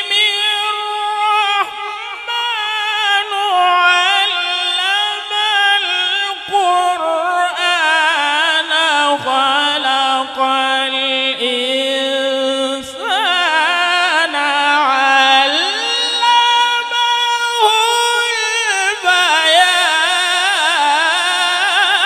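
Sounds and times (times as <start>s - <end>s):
person chanting melodic recitation: 0.0s - 22.0s.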